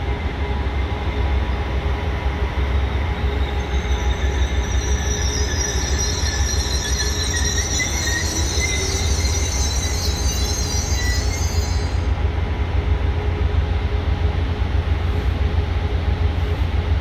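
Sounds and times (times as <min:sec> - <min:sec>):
low train rumble: 0:00.0 - 0:17.0
train wheels squealing: 0:00.8 - 0:12.3.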